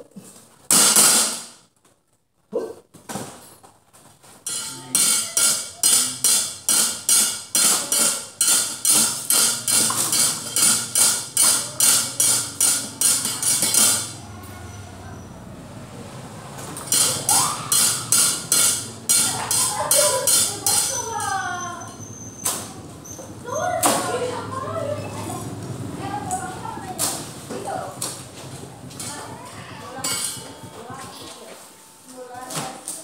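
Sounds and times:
wood rapping on metal plates: 0.7s - 1.5s, 4.4s - 14.2s, 16.7s - 21.1s.

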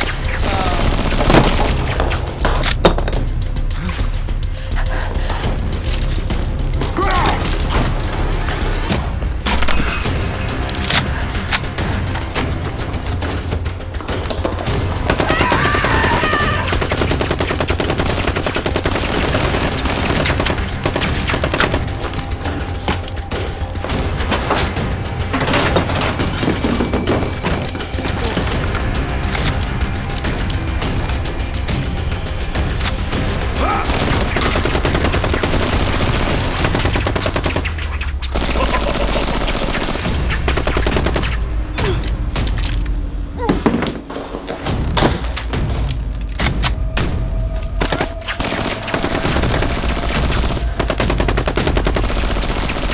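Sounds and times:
rapid machine-gun fire: 0.0s - 2.2s, 15.1s - 22.1s, 33.9s - 41.4s, 47.9s - 52.9s.

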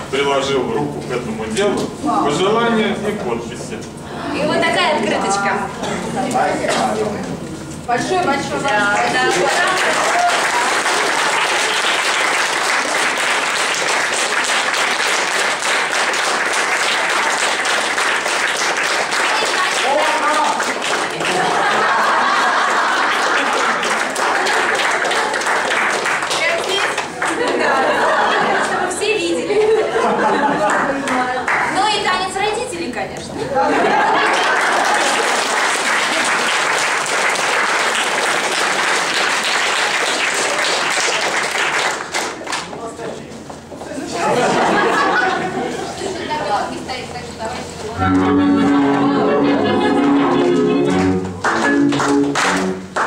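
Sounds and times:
crowd applauding: 8.6s - 28.9s, 33.9s - 42.8s, 48.1s - 53.0s.

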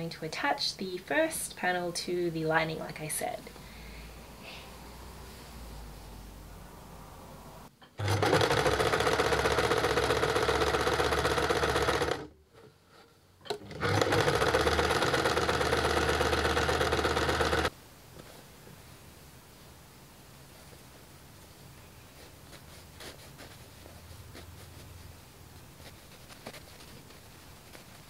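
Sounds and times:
sewing machine stitching: 8.0s - 12.3s, 13.5s - 17.7s.

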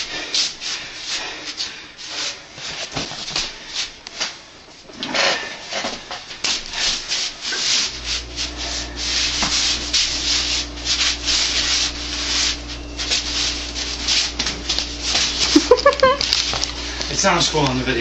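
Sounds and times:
forearms rubbing and slapping: 0.0s - 17.8s
low steady hum: 7.8s - 18.0s.

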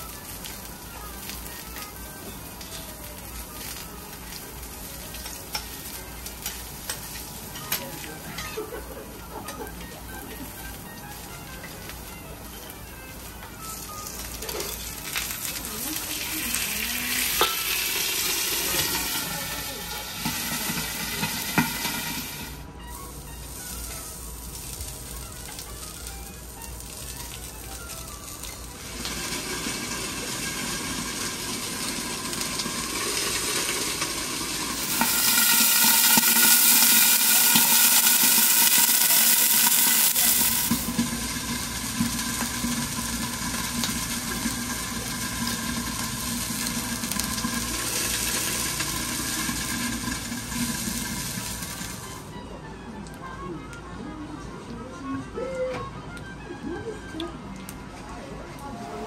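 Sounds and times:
food sizzling on a steel griddle: 0.0s - 52.4s.

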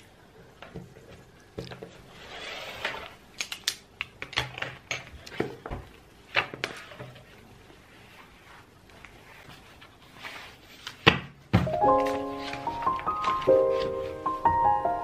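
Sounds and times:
soft rustle: 6.7s - 11.0s.

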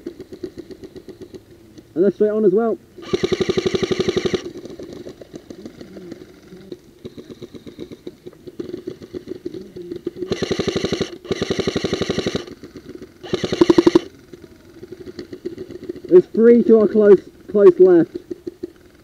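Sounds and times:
gearbox motor whining hum: 3.0s - 4.6s, 10.2s - 15.5s
airsoft guns firing bursts: 3.0s - 9.5s, 10.1s - 14.1s.

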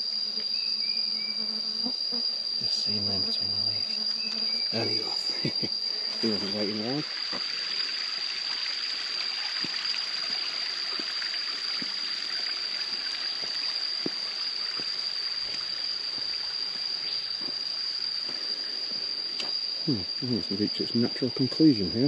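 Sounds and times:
insect high-pitched trill: 0.0s - 22.0s
stream running: 4.8s - 22.0s.

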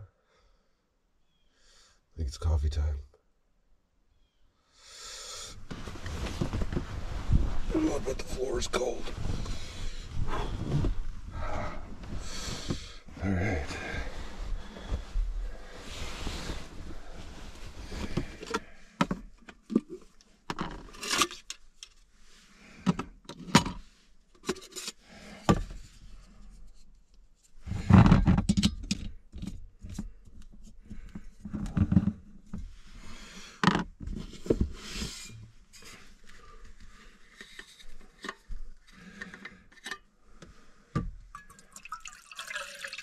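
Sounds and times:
rustling of clothes and bedding: 5.5s - 18.7s
clicks and knocks of camp gear: 16.3s - 22.1s, 27.8s - 32.7s, 33.7s - 40.1s.

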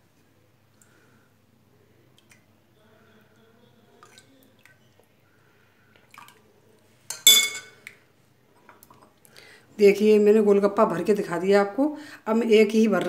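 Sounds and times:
spoon clinking ceramic bowl: 7.1s - 7.8s.

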